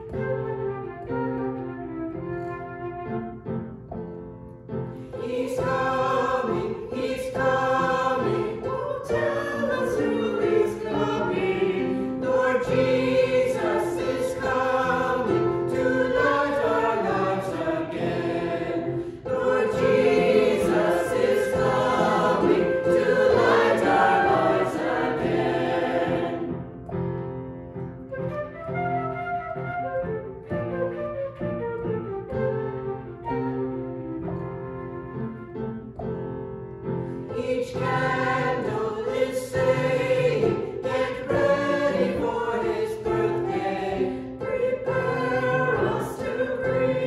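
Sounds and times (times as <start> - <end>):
instrumental accompaniment: 0.0 - 47.0
choir singing a hymn: 5.0 - 26.8, 37.0 - 47.0.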